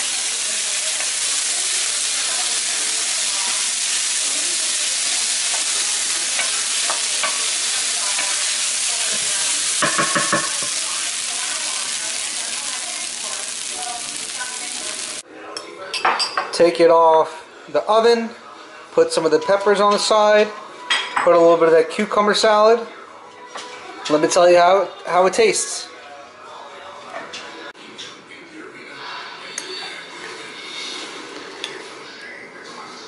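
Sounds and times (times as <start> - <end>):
vegetables sizzling in frying pan: 0.0 - 15.2.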